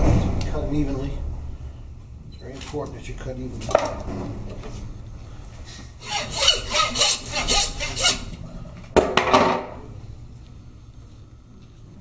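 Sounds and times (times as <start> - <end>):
saw rasping through bone: 6.0 - 8.3.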